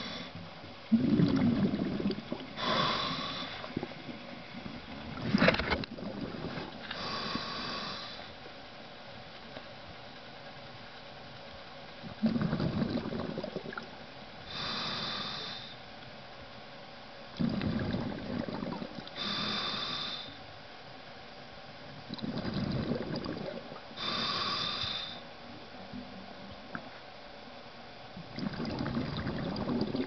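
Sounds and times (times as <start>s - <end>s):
regulator hiss on inhale: 0.0s - 0.4s, 2.6s - 4.0s, 6.4s - 8.5s, 14.4s - 15.9s, 19.1s - 20.7s, 23.9s - 25.4s
exhaled bubbles gurgling: 0.9s - 8.1s, 12.0s - 15.3s, 17.4s - 20.0s, 21.9s - 27.0s, 28.2s - 30.0s.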